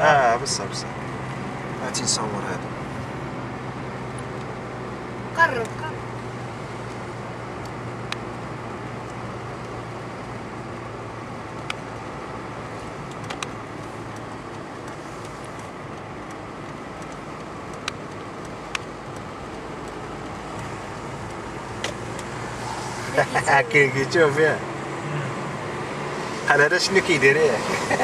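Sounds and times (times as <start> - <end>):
car road and engine noise: 0.0 - 28.0
sharp clicks: 13.0 - 22.3.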